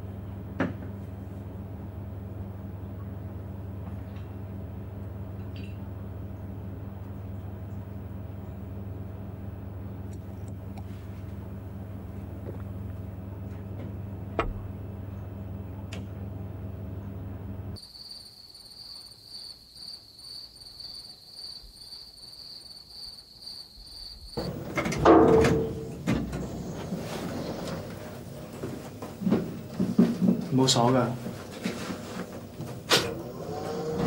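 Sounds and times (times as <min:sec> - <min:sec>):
crickets trilling: 0:17.8 - 0:32.9
low hum: 0:24.4 - 0:30.5.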